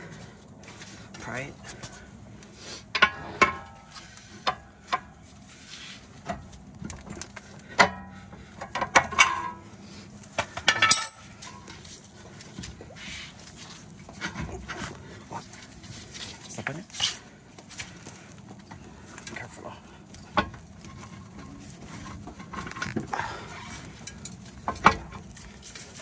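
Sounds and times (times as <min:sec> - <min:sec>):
metal pry bar clanking: 0:10.4 - 0:11.7.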